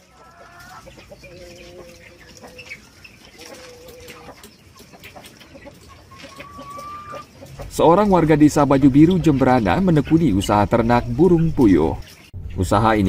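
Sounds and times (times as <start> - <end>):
quail chirping: 0.0 - 13.0
quail long level calls: 5.1 - 7.7.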